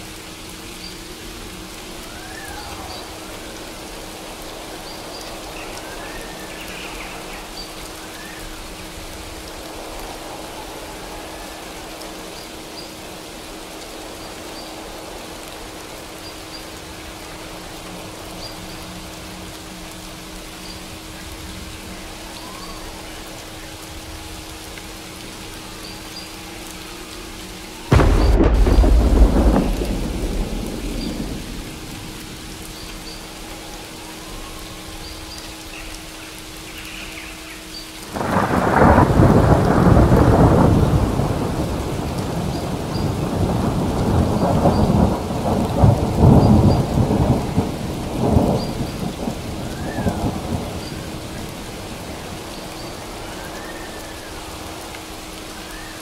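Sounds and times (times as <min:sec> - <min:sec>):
steady rain: 0:00.0 - 0:56.0
thunder clap: 0:27.9 - 0:32.6, 0:38.2 - 0:50.8
rolling thunder rumble: 0:27.9 - 0:33.5, 0:38.1 - 0:54.4.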